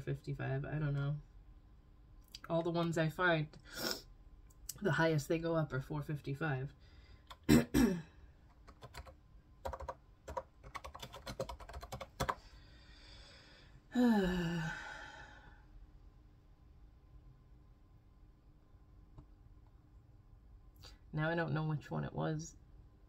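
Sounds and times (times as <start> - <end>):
keyboard typing: 8.5 - 12.4
breathy sigh: 12.6 - 15.7.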